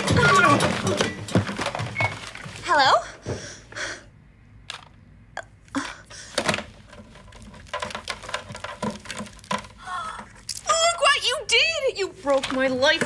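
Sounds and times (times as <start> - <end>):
small objects handled on a table: 6.3 - 10.7.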